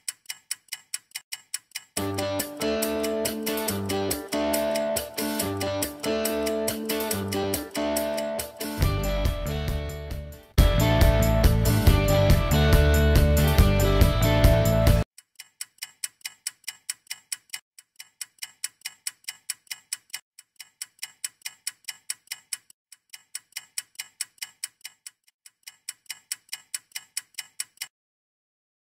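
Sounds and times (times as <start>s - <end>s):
clock-like ticking: 0.0s - 8.9s, 15.2s - 27.9s
music: 2.0s - 15.0s.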